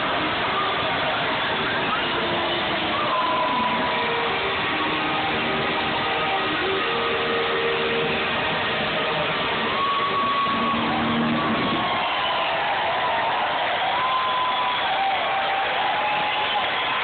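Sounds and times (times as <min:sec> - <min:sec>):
distorted live rock band: 0:00.0 - 0:12.3.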